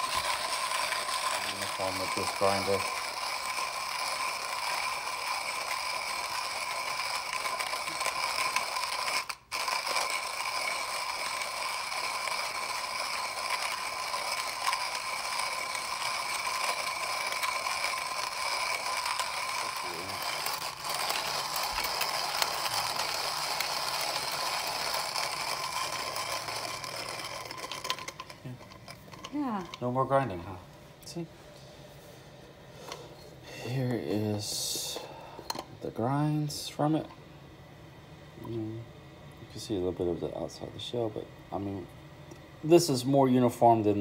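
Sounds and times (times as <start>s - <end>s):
hand coffee grinder grinding beans: 0.0s - 30.4s.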